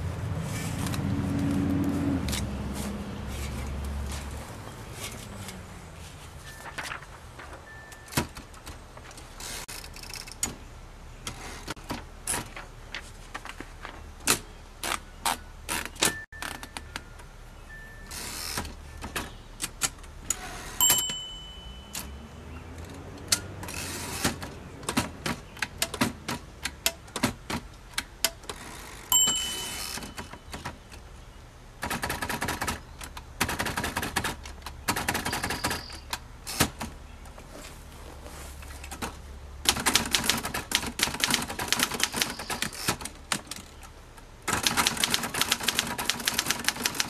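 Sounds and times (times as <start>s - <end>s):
typewriter margin bell ringing: 7.6s - 8.4s, 20.8s - 22.4s, 29.1s - 30.6s, 35.2s - 36.1s
typewriter typebars clacking: 31.8s - 36.9s, 38.9s - 43.7s, 44.5s - 47.0s.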